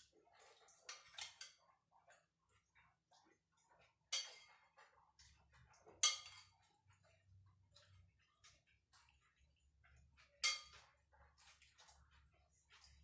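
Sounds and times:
spoon clinking against ceramic bowl: 6.0 - 6.6, 10.2 - 11.0.

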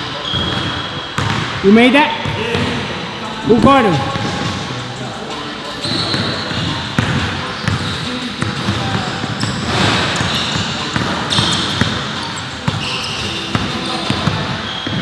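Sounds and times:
basketball bouncing on court: 0.3 - 1.6, 2.2 - 2.9, 6.0 - 15.0.

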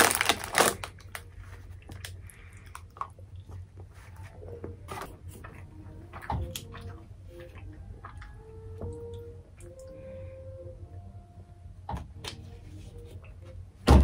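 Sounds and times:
foil wrapper rustling: 0.0 - 2.2
person chewing chocolate: 0.0 - 8.6.

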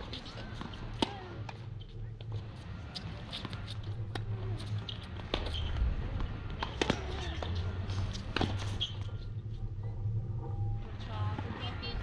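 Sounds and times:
tennis ball bouncing: 0.0 - 5.8, 6.6 - 9.3
steady low rumble: 0.0 - 12.0
racquet striking tennis ball: 0.2 - 1.6.

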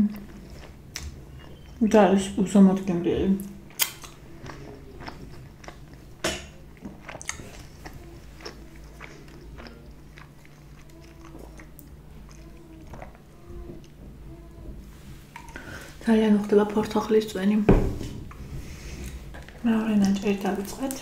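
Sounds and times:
person chewing food: 0.0 - 1.8, 3.4 - 16.7, 18.3 - 21.0
wet mouth clicks: 3.4 - 5.8.

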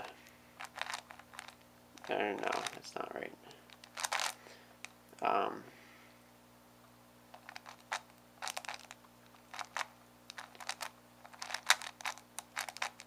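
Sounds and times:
plastic puzzle clicking: 7.4 - 13.0.

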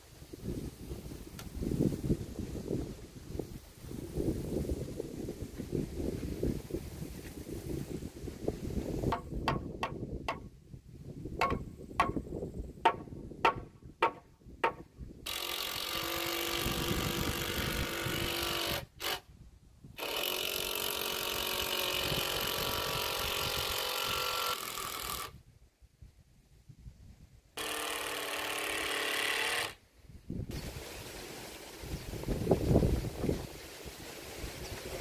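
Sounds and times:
sharp knocks on timber beam: 9.1 - 10.5, 11.4 - 12.2, 12.8 - 14.9
power drill running: 27.6 - 29.8.

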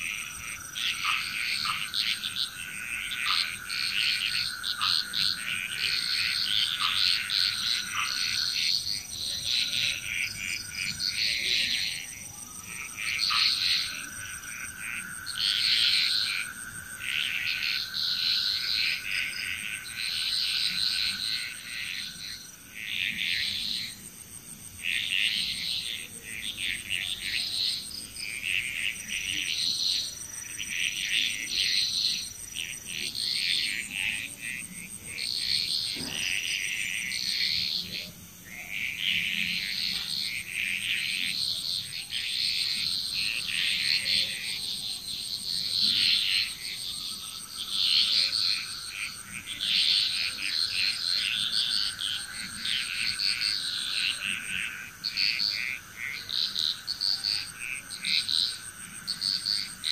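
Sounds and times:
frogs calling: 0.0 - 59.9.

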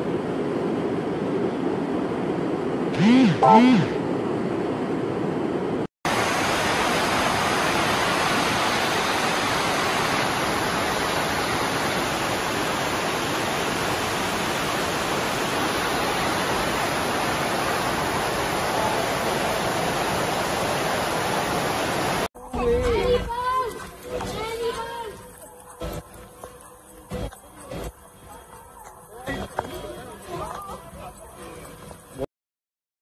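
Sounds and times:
floodwater rushing: 6.1 - 22.3.

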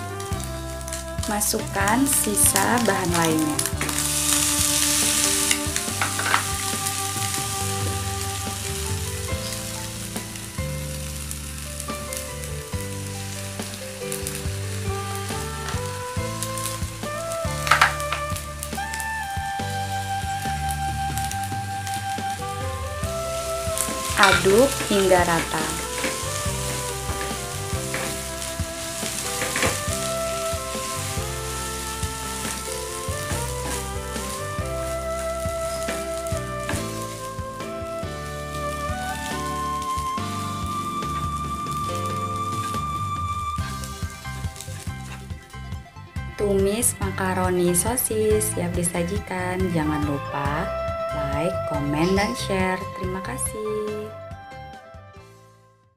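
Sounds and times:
food sizzling in a frying pan: 0.0 - 53.6
background music with sustained notes: 0.0 - 55.9
spatula stirring: 2.2 - 18.4, 21.9 - 43.0
plastic spatula scraping pan: 22.4 - 34.9.

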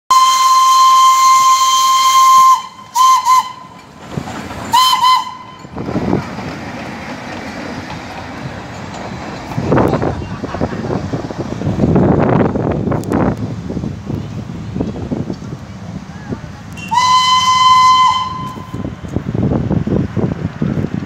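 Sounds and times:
steam locomotive whistle: 0.1 - 3.8, 4.7 - 5.7, 16.7 - 19.0
train coaches rumbling past: 0.1 - 21.0.

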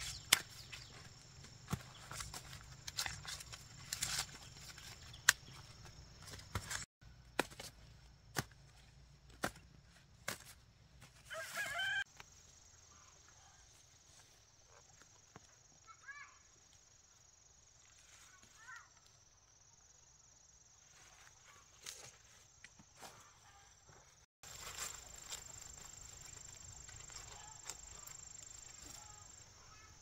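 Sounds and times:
dry corn husks crackling: 0.0 - 7.7, 24.4 - 30.0
chicken call: 11.3 - 12.0.

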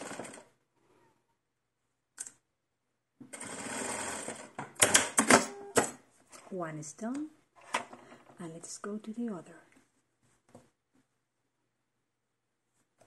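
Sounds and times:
sewing machine running: 0.0 - 0.5, 3.3 - 5.7.

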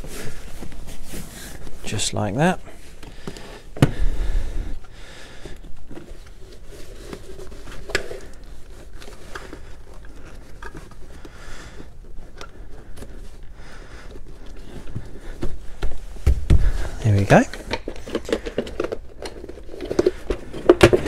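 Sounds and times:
scraping and rustling on plastic trim: 5.7 - 21.0.

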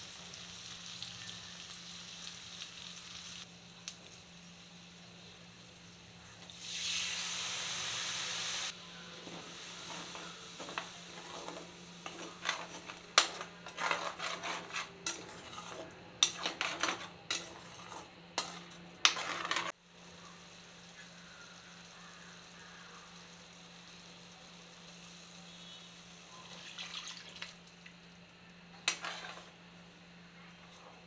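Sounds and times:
liquid sizzling in hot oil: 0.0 - 28.0
spatula scraping a pan: 9.2 - 19.8, 28.8 - 29.6.

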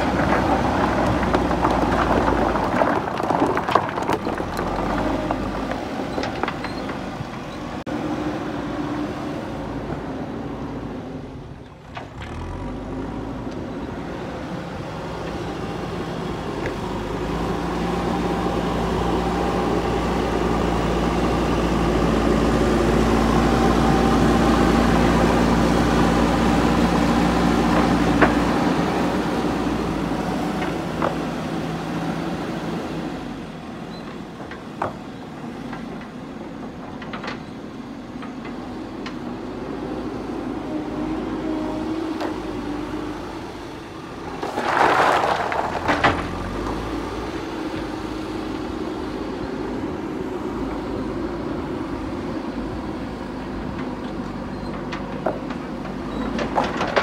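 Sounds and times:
stones clattering in bucket: 0.0 - 7.0, 44.3 - 46.8
diesel engine under load: 0.0 - 57.0.

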